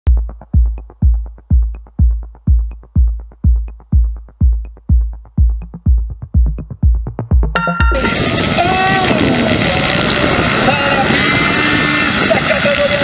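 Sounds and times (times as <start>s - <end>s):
deep kick drum: 0.1s - 8.1s
electronic music: 0.1s - 11.0s.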